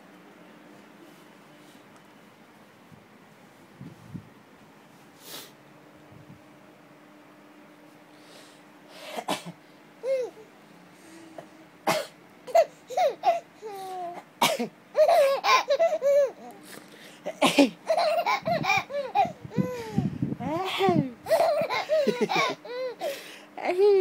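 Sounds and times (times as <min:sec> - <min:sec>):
baby laughing and squealing: 0:12.5 - 0:14.2, 0:15.0 - 0:16.6, 0:17.9 - 0:20.0, 0:21.2 - 0:23.1.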